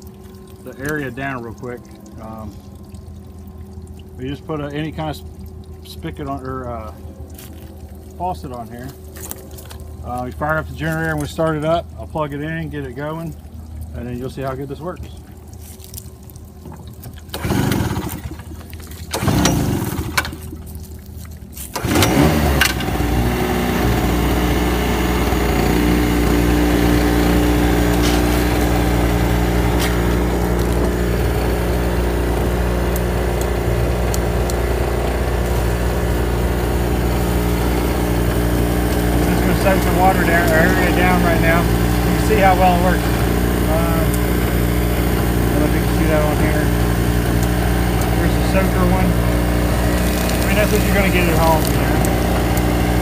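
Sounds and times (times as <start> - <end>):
gasoline generator running: 0.0 - 53.0
generator pull-start: 16.7 - 20.8, 21.6 - 53.0.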